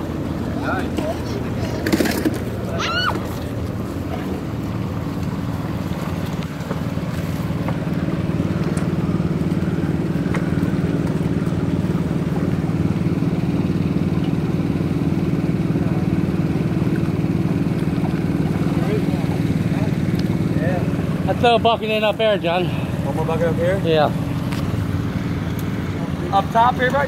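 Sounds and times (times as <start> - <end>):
engine idling: 0.0 - 27.0.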